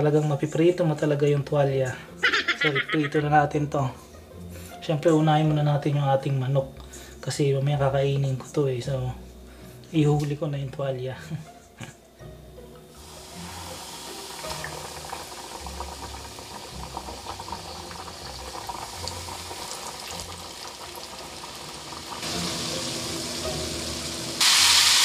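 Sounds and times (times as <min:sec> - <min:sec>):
chicken sizzling in hot oil: 0:13.0 - 0:25.0.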